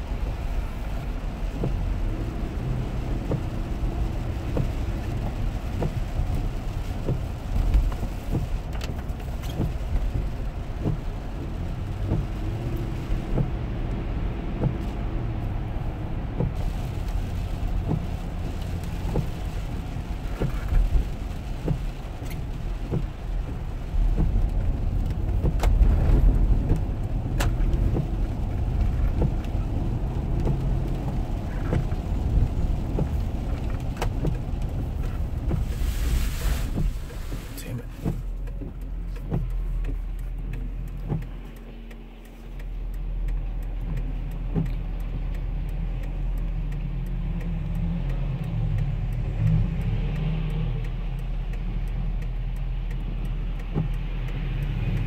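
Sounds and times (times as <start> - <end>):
low road rumble: 0.0 - 55.0
tyres hissing on wet road: 0.0 - 55.0
small ticks: 38.4 - 55.0.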